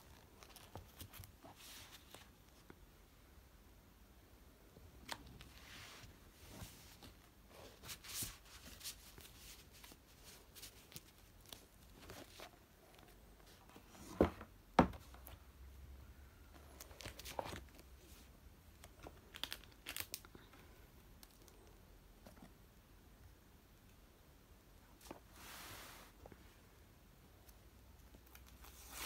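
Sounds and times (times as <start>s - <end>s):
paper rustling: 5.4s - 13.8s.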